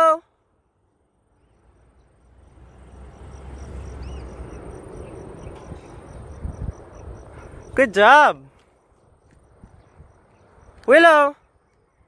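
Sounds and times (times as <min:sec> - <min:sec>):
faint insect chirping: 0:00.7 - 0:12.0
steady rushing noise: 0:02.4 - 0:10.9
wind rumble on microphone: 0:03.0 - 0:07.8, 0:08.9 - 0:10.8.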